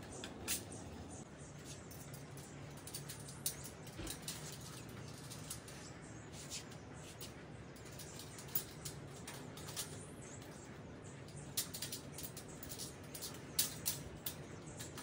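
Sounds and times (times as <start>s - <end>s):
small metal clicks and scratches: 0.0s - 15.0s
sharp metal ticks: 11.2s - 15.0s.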